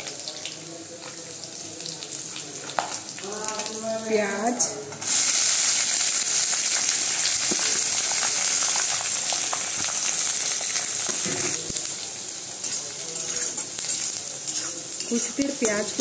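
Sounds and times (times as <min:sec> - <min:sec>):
onions sizzling in hot oil: 0:00.0 - 0:16.0
steel spatula scraping and clinking: 0:12.6 - 0:16.0.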